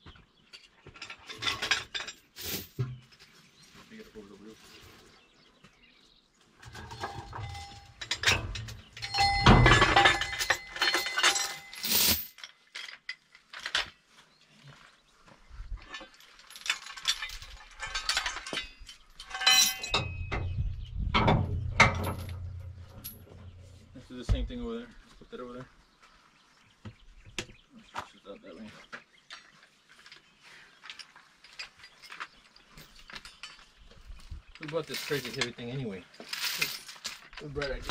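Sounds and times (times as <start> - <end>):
steel tools clanking: 6.6 - 13.1, 15.9 - 23.9, 34.6 - 37.9.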